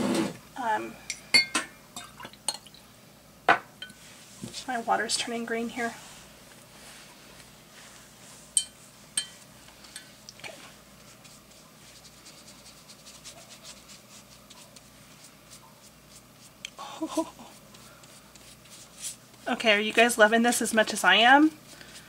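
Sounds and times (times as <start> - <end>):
brush strokes on paper: 4.0 - 9.9, 10.5 - 22.0
paintbrush clinking on glass jar: 8.6 - 10.2.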